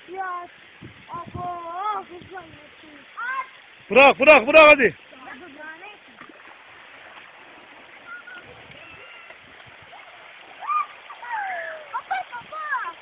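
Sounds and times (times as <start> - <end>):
water rushing down concrete channel: 0.0 - 13.0
voices calling out: 7.9 - 13.0.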